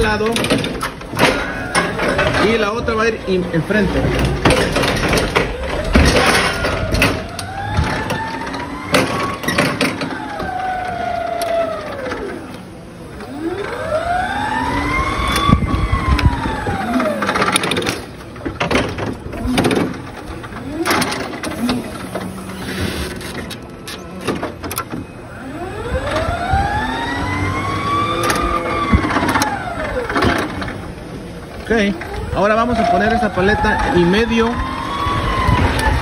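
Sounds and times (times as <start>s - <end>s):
clunks and rattles of forks: 0.0s - 3.1s, 3.8s - 10.6s, 16.7s - 25.1s
forklift motor whine: 0.0s - 36.0s.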